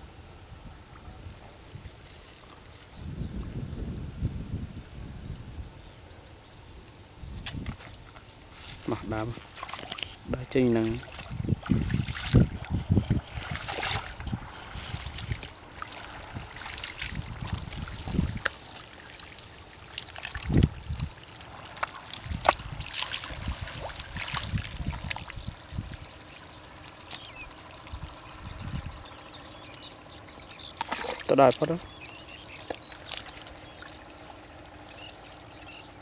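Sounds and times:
wet mud squelching: 0:07.4 - 0:28.9, 0:29.6 - 0:35.5
muddy water splashing: 0:07.4 - 0:36.0.

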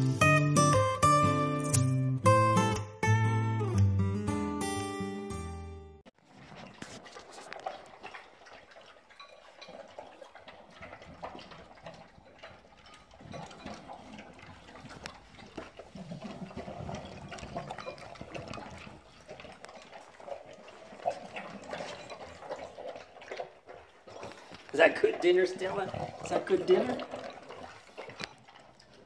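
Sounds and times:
dogs chewing and licking: 0:06.2 - 0:29.0.

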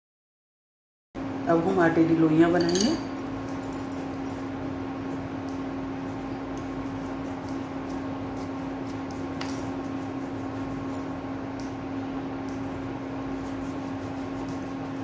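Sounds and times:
steady machine hum: 0:01.2 - 0:15.0.

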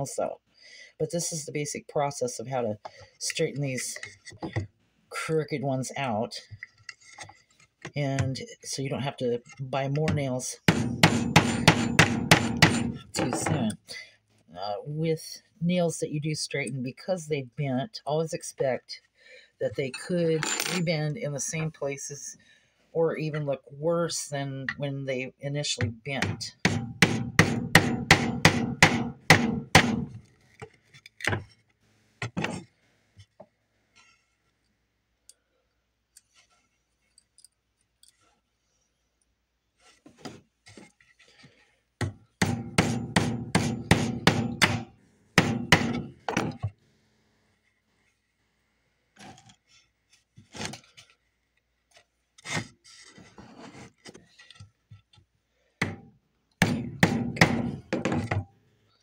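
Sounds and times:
scraping and handling sounds: 0:02.8 - 0:04.8, 0:06.4 - 0:10.4, 0:30.1 - 0:34.7, 0:36.1 - 0:38.6, 0:39.7 - 0:41.8, 0:49.2 - 0:55.3
hammer striking nail: 0:10.7 - 0:13.0, 0:26.6 - 0:30.2, 0:42.0 - 0:46.7, 0:56.6 - 0:58.4.

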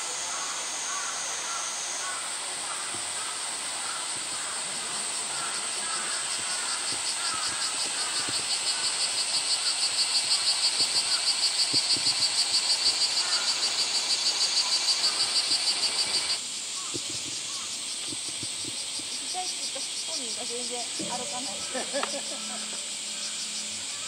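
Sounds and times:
cicadas chorus: 0:00.0 - 0:24.0
pulsing insect call: 0:00.0 - 0:24.0.

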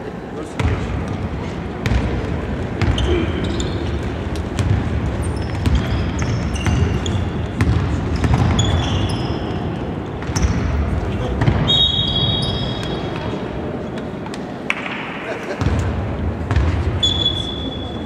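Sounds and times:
sneakers squeaking on floor: 0:01.8 - 0:13.4, 0:16.5 - 0:18.0.

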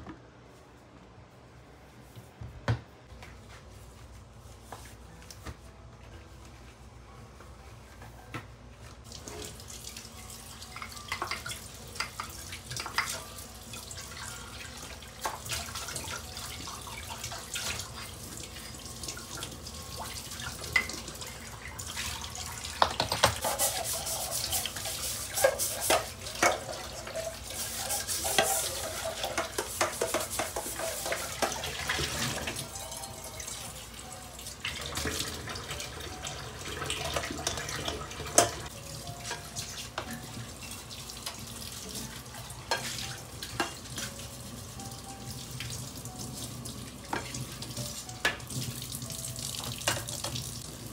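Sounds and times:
dishes clinking against sink: 0:10.7 - 0:13.3, 0:25.4 - 0:32.8, 0:36.9 - 0:41.4, 0:42.7 - 0:44.2, 0:49.7 - 0:50.4.

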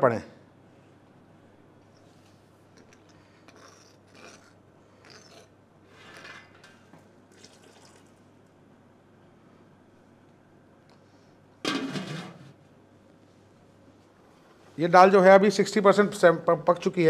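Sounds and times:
liquid pouring into a pot: 0:07.3 - 0:08.3.

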